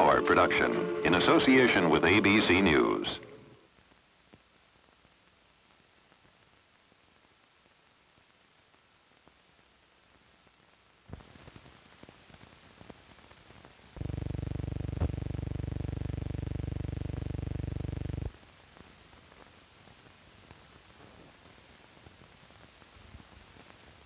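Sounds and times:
film hiss and crackle: 0.0s - 24.0s
loud low buzz: 14.0s - 18.3s.

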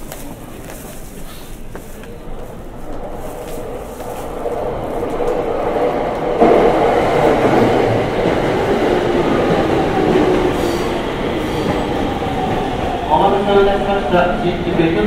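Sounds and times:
train wheels rumbling: 0.0s - 15.0s.

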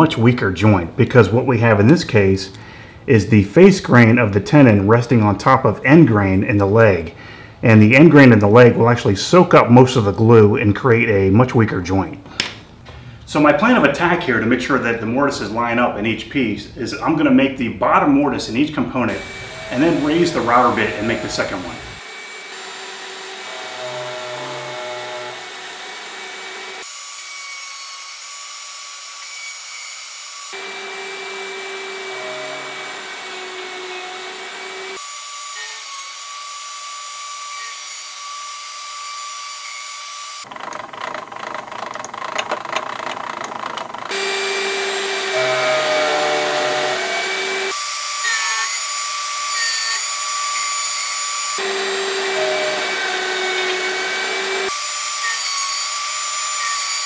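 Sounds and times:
router whining: 19.1s - 57.0s.

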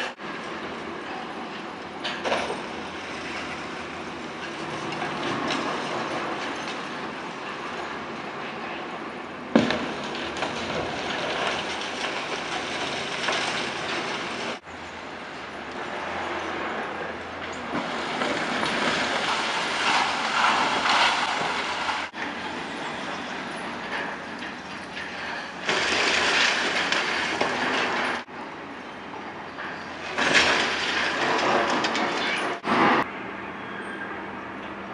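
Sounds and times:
concrete rubble falling: 9.6s - 14.7s, 17.7s - 22.2s, 23.9s - 28.3s, 29.7s - 33.0s.

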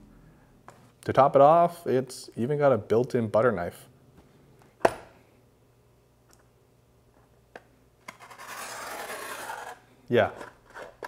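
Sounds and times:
blade scraping cardboard tape: 8.1s - 9.8s.

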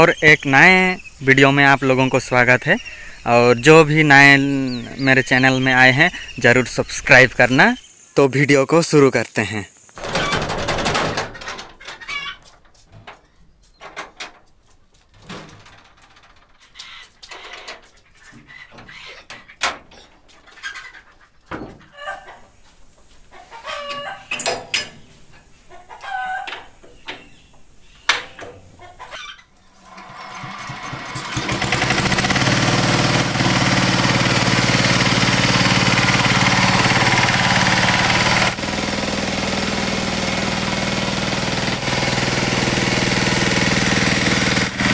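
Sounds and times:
chickens clucking: 0.0s - 7.8s, 11.1s - 13.9s, 16.6s - 31.6s
scattered knocks and clicks: 9.9s - 13.2s
diesel tiller engine running: 29.9s - 44.9s.

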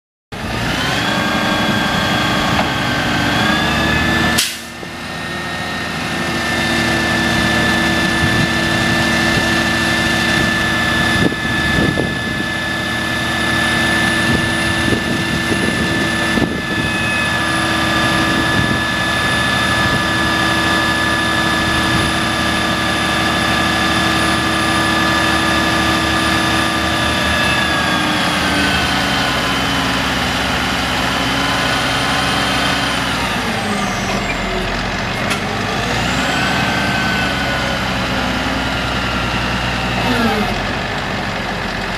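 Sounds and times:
truck engine running at raised revs: 0.3s - 41.9s
steady high whine: 1.6s - 34.6s.

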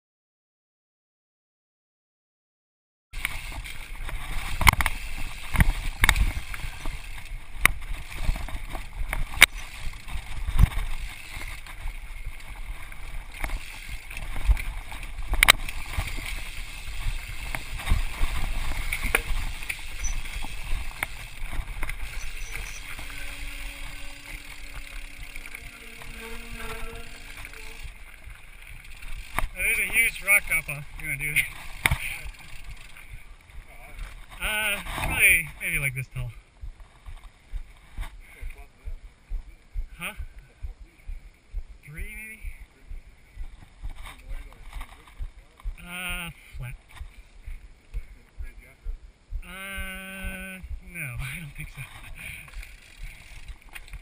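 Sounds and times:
mountain bike rattling on rocks: 3.2s - 35.9s, 43.4s - 45.7s, 51.2s - 54.0s.

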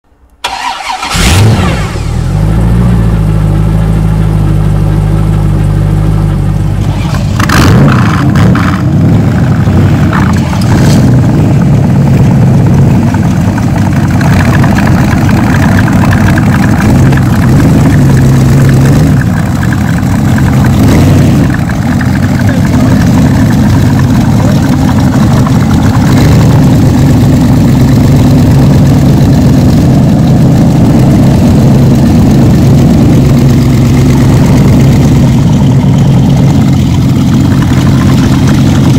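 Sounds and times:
motorcycle engine idling loudly: 1.9s - 38.9s
motorcycle engines revving: 6.9s - 12.3s, 13.0s - 38.9s.

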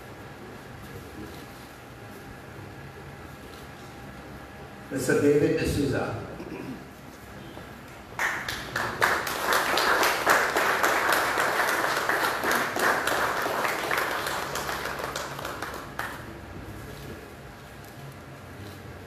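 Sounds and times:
audience applauding: 8.2s - 16.4s.

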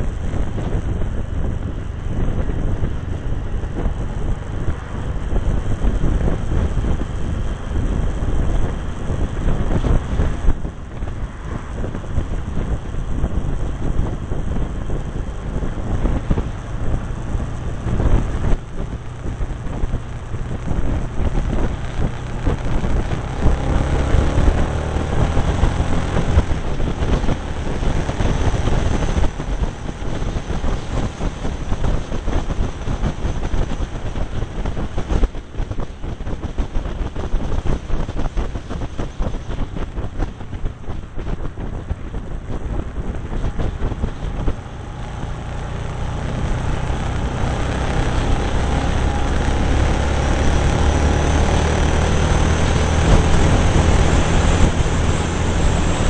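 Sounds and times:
motorcycle engine running: 0.0s - 56.0s
wind buffeting microphone: 0.0s - 56.0s.

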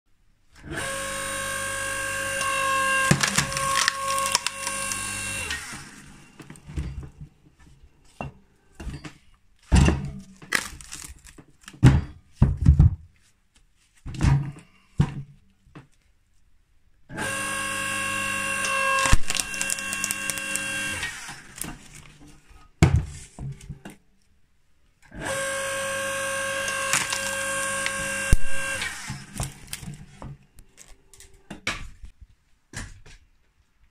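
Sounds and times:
log splitter running: 0.6s - 6.8s, 17.1s - 22.2s, 25.1s - 30.1s
wood cracking and knocking: 3.1s - 5.0s, 9.8s - 13.0s, 19.0s - 20.7s, 26.7s - 30.9s.

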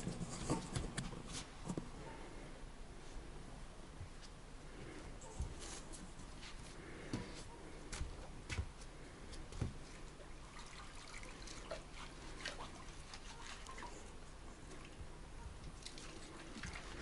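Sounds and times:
water dripping and trickling: 9.8s - 14.0s, 15.6s - 17.0s.

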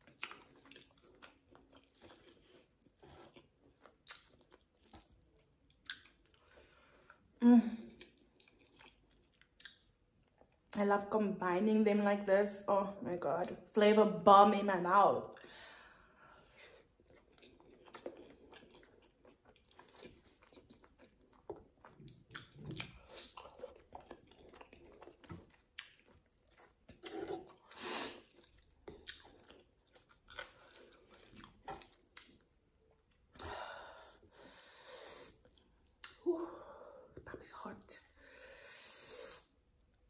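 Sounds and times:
person chewing: 0.0s - 7.3s, 8.0s - 10.7s, 16.4s - 34.6s, 35.2s - 36.2s.

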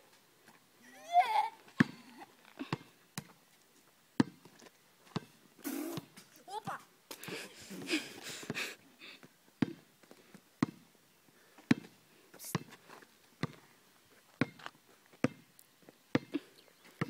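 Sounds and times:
basketball bouncing on asphalt: 2.7s - 3.4s, 4.2s - 6.8s, 9.6s - 9.9s, 10.6s - 10.9s, 11.6s - 12.8s, 13.4s - 13.6s, 14.4s - 15.5s, 16.1s - 16.3s.

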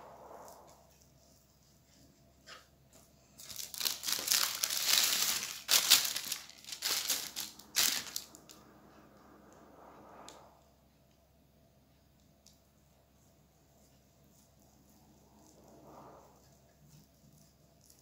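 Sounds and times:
paper crinkling: 3.3s - 8.5s.

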